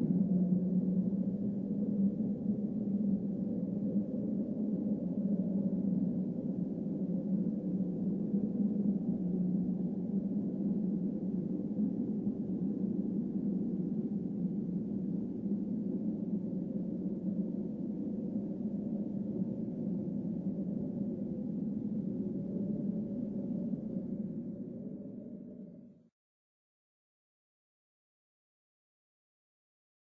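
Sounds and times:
steady low droning tone: 0.0s - 7.3s.

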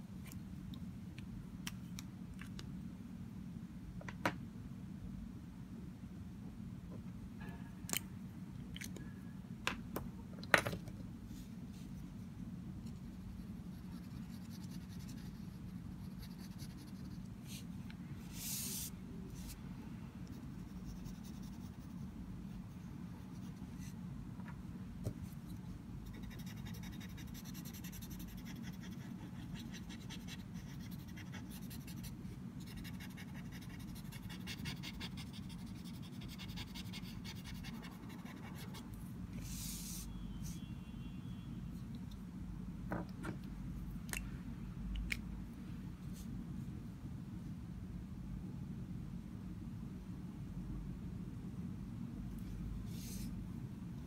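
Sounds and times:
low steady hum: 0.0s - 54.0s
pencil scratching on paper: 26.1s - 38.8s.

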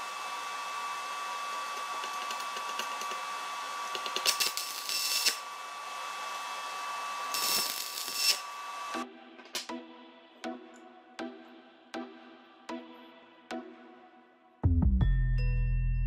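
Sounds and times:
welding arc crackling: 0.0s - 9.0s.

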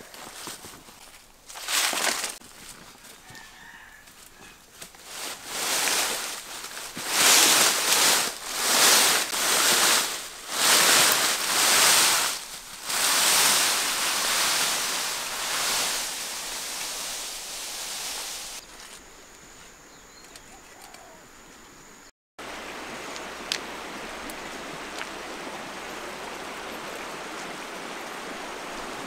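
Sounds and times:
footsteps on dry leaves: 0.0s - 19.0s
snake dragging through dry leaves: 1.4s - 4.0s, 4.8s - 19.0s.

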